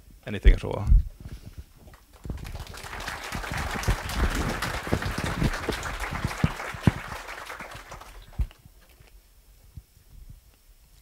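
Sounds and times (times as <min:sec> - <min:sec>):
audience applauding: 0:01.9 - 0:08.6.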